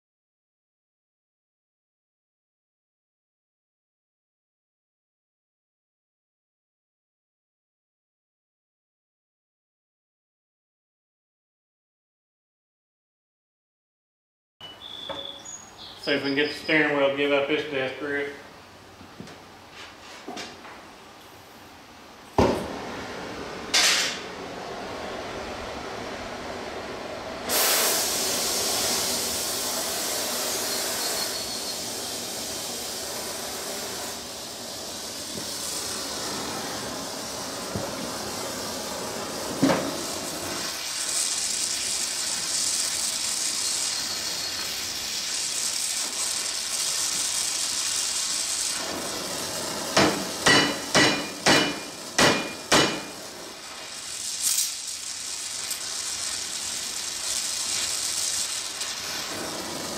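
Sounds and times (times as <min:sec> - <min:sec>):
gas torch hissing: 0:22.4 - 0:59.9
sharp metallic strikes: 0:50.0 - 0:53.1.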